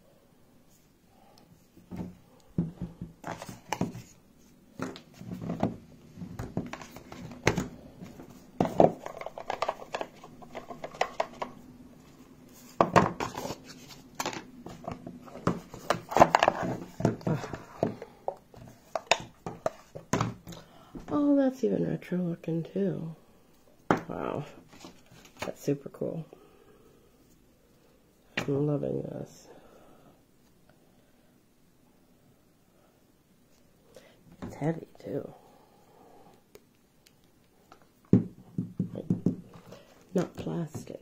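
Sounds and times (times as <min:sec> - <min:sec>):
box and paper handling noise: 0:03.2 - 0:04.2, 0:06.4 - 0:20.4.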